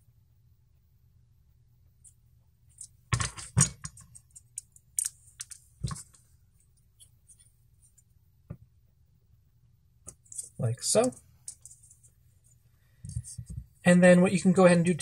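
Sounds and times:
faint ticks and scratches: 3.8s - 8.2s, 10.1s - 13.9s.

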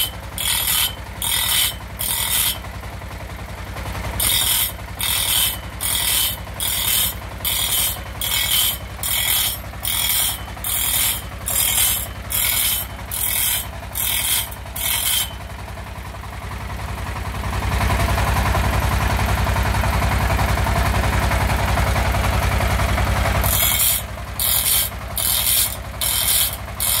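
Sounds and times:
bench grinder motor hum: 0.0s - 2.6s, 4.2s - 15.4s, 23.3s - 27.0s
grinder wheel rasping on saw teeth: 0.0s - 2.6s, 4.2s - 15.5s, 23.4s - 27.0s.

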